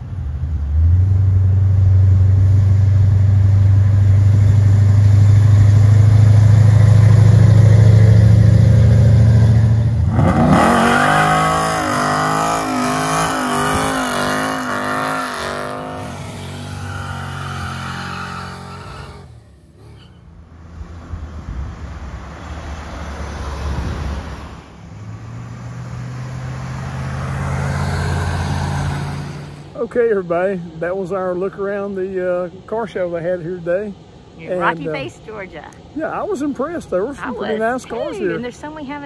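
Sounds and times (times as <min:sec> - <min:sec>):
car engine revving: 0:00.0 - 0:31.1
car engine approaching: 0:00.0 - 0:39.0.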